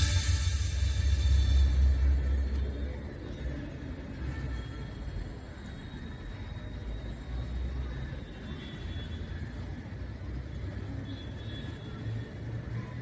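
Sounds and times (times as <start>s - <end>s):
low outdoor rumble: 0.0s - 4.3s.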